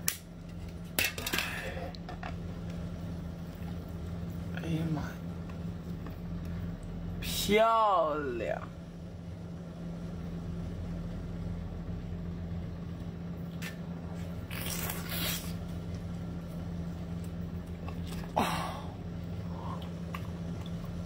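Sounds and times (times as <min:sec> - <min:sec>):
steady low hum: 0:00.0 - 0:21.0
person eating: 0:13.5 - 0:16.1, 0:16.8 - 0:21.0.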